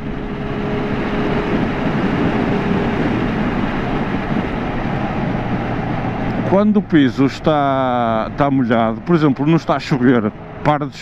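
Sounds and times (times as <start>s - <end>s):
wind and road noise: 0.0s - 11.0s.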